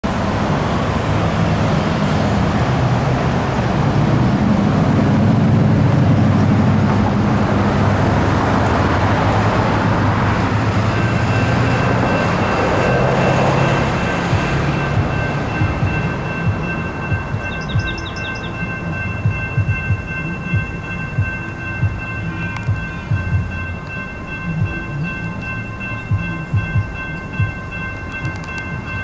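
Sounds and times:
road traffic driving past: 0:00.1 - 0:20.8
crossing warning bell ringing: 0:05.0 - 0:29.0.

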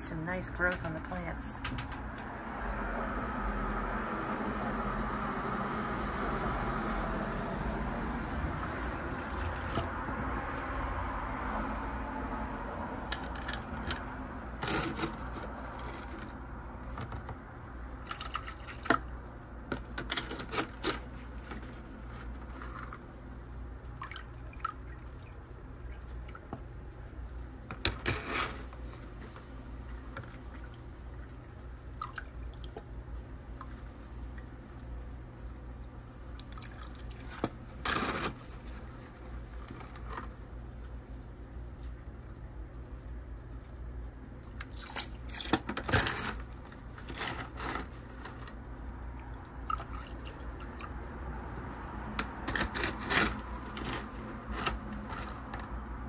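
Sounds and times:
low steady hum: 0:00.0 - 0:56.0
water splashing and dripping: 0:08.3 - 0:12.0, 0:18.0 - 0:19.6, 0:21.4 - 0:27.6, 0:29.0 - 0:37.7, 0:41.8 - 0:45.7, 0:48.5 - 0:52.4.

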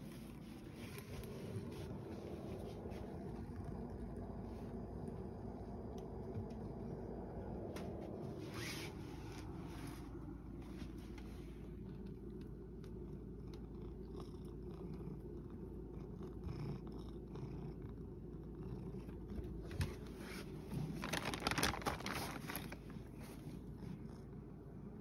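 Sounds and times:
cat purring: 0:00.0 - 0:25.0.

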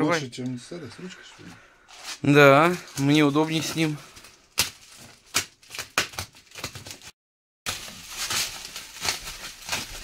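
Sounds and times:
packaging crackling and scraping: 0:01.9 - 0:07.1, 0:07.7 - 0:10.0.

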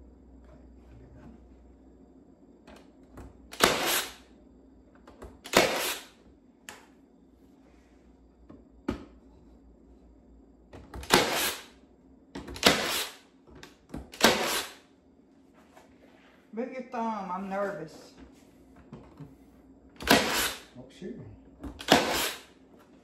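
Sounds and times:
nail gun snaps: 0:05.4 - 0:06.1, 0:20.0 - 0:20.6, 0:21.8 - 0:22.4.

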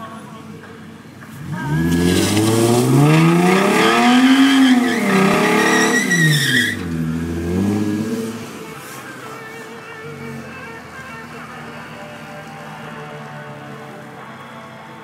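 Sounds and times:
car engine revving: 0:01.2 - 0:09.4
tyres squealing: 0:01.4 - 0:12.1.

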